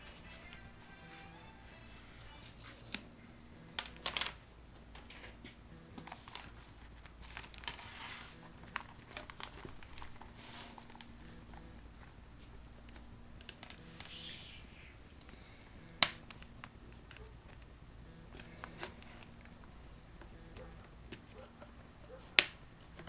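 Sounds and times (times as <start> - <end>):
plastic film crinkling: 6.0 - 14.3.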